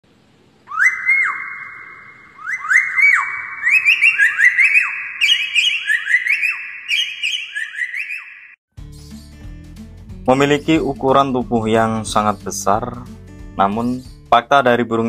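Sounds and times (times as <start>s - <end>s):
bird whistling calls: 0.7s - 8.6s.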